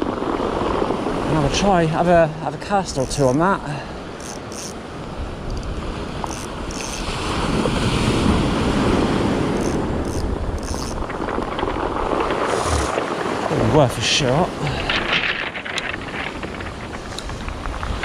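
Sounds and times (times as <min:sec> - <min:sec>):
wind buffeting microphone: 0:00.0 - 0:18.0
surf breaking on shingle beach: 0:07.0 - 0:18.0.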